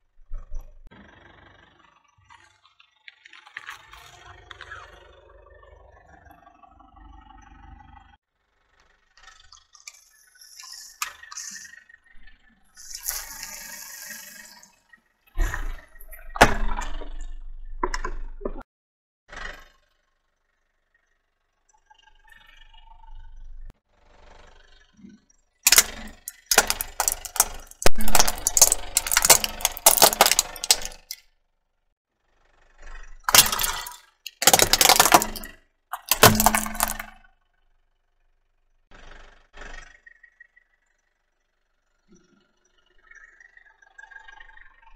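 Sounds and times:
plastic bottle crackling under tyre: 0:12.8 - 0:14.3, 0:25.7 - 0:31.2, 0:33.3 - 0:37.1
bottle bursting with liquid hiss: 0:12.8 - 0:14.6
sharp plastic crack: 0:25.7 - 0:31.2, 0:33.3 - 0:37.2.

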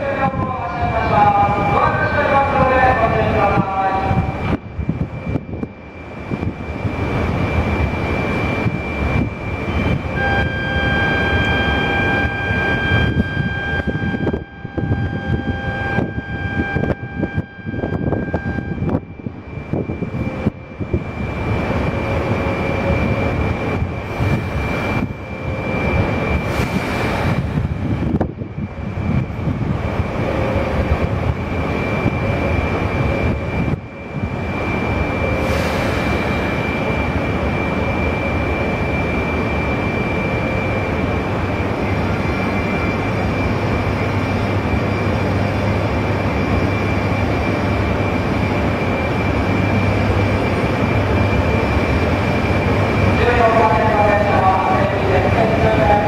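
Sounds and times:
train equipment rushing drone: 0:00.0 - 0:56.0
thin high whine: 0:04.3 - 0:27.4
steady high tones: 0:05.8 - 0:26.5.

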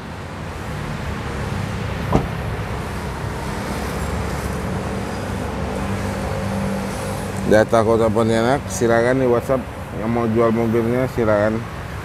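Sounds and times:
street traffic hum: 0:00.0 - 0:12.0.

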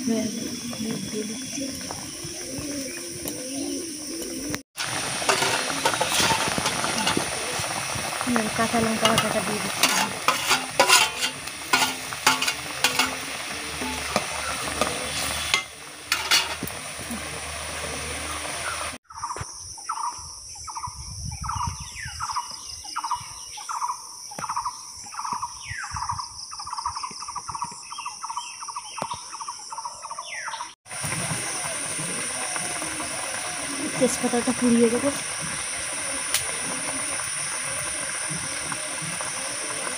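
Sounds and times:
high insect-like hiss: 0:00.0 - 0:21.6, 0:30.9 - 0:39.9
curry bubbling and sizzling: 0:00.1 - 0:19.0, 0:30.9 - 0:39.9.

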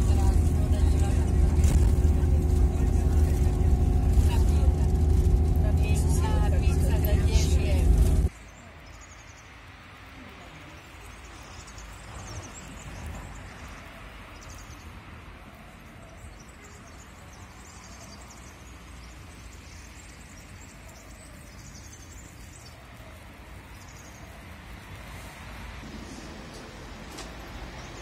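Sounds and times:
steady low rumble: 0:00.0 - 0:08.3
small birds chirping: 0:00.0 - 0:25.7.

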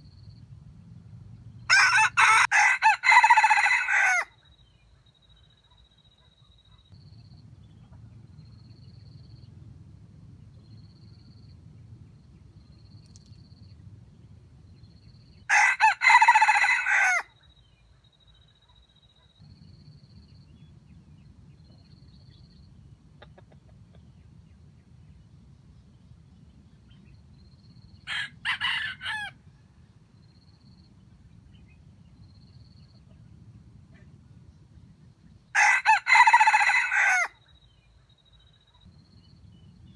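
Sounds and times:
rooster crowing: 0:01.7 - 0:04.4, 0:15.5 - 0:17.3, 0:28.0 - 0:29.4, 0:35.5 - 0:37.4.

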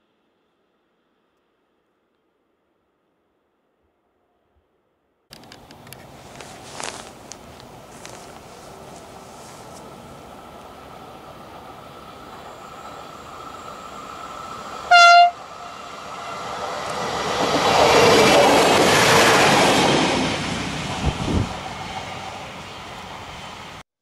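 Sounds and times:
train engine and wheels passing: 0:05.3 - 0:23.8
train horn blast: 0:14.8 - 0:16.6.

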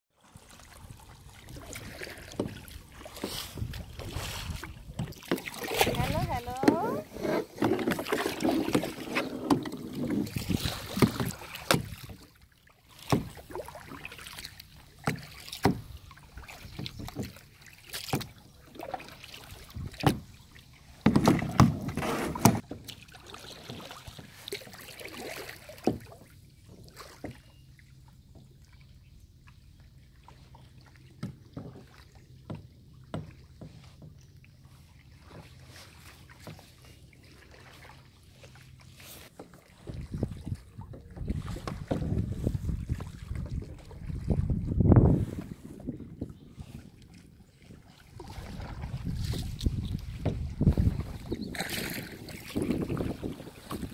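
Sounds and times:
paddles splashing in water: 0:00.1 - 0:53.9
water sloshing: 0:00.2 - 0:53.9
knocks on kayak: 0:21.0 - 0:22.7.

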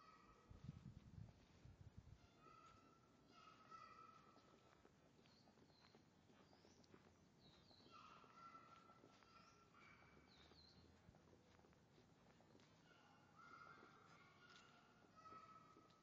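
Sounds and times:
faint bird calls: 0:02.3 - 0:11.0, 0:12.5 - 0:15.9.

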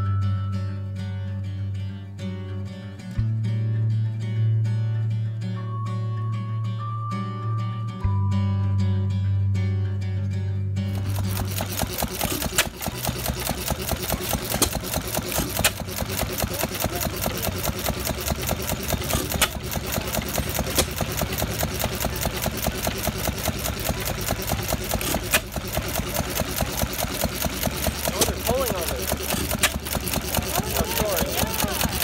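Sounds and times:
engine sharp crack: 0:10.9 - 0:32.0
stationary engine clattering: 0:10.9 - 0:32.0.

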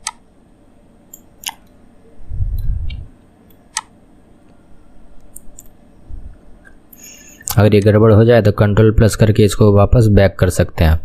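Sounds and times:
computer mouse clicks: 0:00.0 - 0:00.2, 0:01.1 - 0:01.8, 0:02.6 - 0:03.9.

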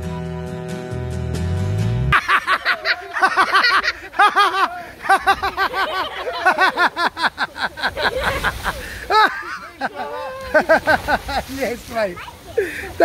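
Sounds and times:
person laughing hard: 0:02.2 - 0:11.4.

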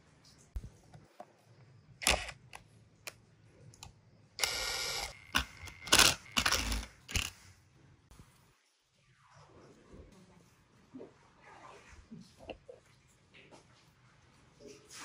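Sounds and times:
cordless impact driver spinning: 0:04.4 - 0:07.3.

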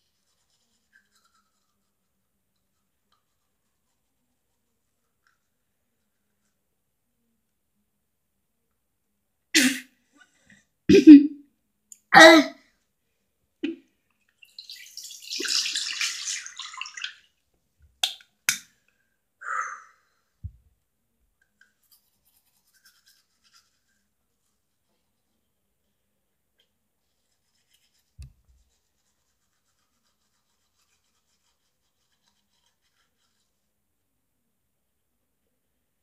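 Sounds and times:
toothbrushing: 0:00.0 - 0:06.6, 0:21.5 - 0:24.8, 0:27.0 - 0:33.6.

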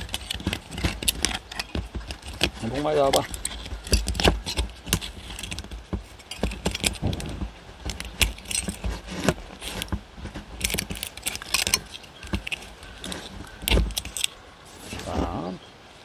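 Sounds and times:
metallic clicks and crinkling: 0:00.0 - 0:15.1.

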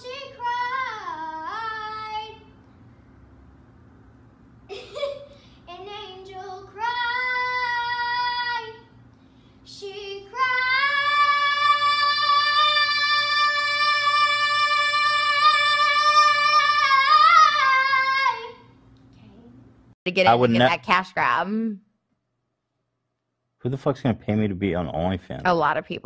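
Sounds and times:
girl singing: 0:00.0 - 0:02.6, 0:05.6 - 0:09.0, 0:09.7 - 0:19.6, 0:20.3 - 0:20.7.

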